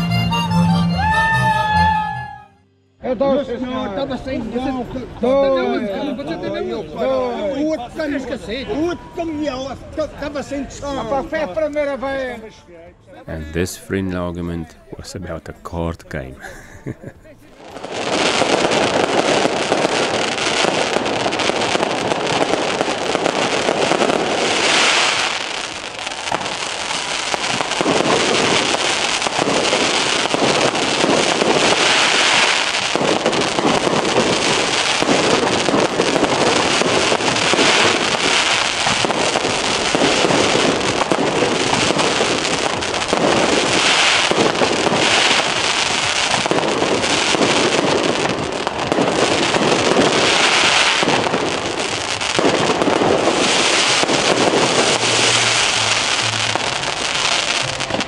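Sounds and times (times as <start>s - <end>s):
fireworks crackling and popping: 13.3s - 58.0s.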